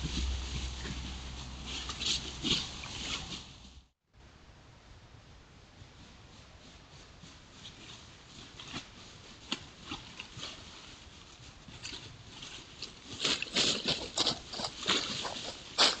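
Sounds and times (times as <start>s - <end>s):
footsteps in dry leaves: 0.0s - 3.9s, 6.4s - 16.0s
microphone hiss: 0.0s - 11.9s.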